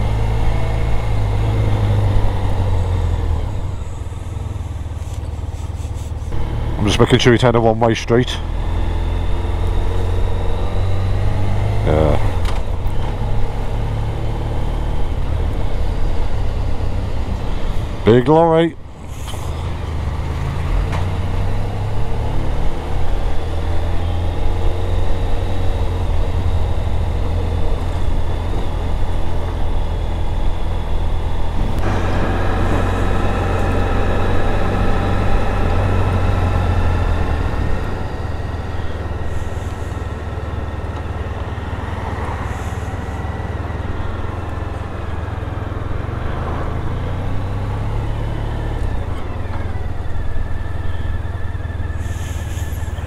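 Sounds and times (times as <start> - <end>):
motorcycle engine rumble: 0.0 - 53.0
steady engine tones: 0.0 - 53.0
wind: 0.0 - 53.0.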